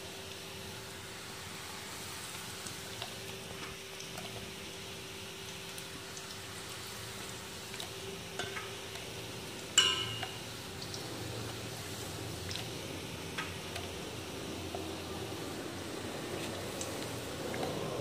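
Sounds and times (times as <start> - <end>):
faint steady hum: 0.0 - 18.0
oil sizzling while deep-frying: 0.0 - 18.0
metallic clink of kitchenware: 9.8 - 10.5.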